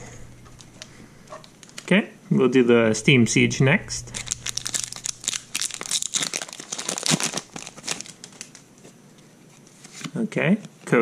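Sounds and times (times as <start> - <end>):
foil wrapper tearing and crinkling: 4.1 - 8.7.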